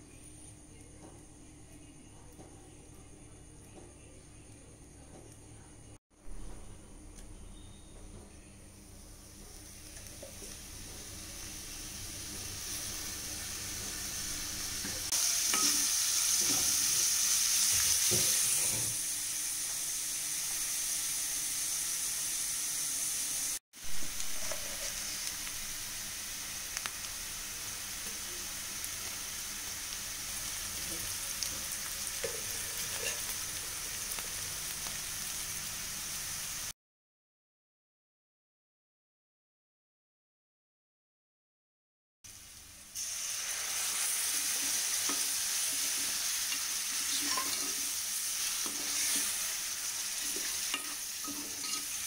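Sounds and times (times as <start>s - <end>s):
onions sizzling in hot oil: 8.8s - 36.7s, 42.3s - 52.0s.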